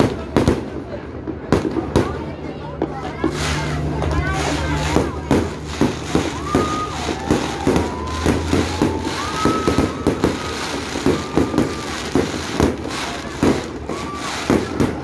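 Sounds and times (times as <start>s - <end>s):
fireworks bangs and crackles: 0.0s - 15.0s
fireworks whistles: 3.1s - 15.0s.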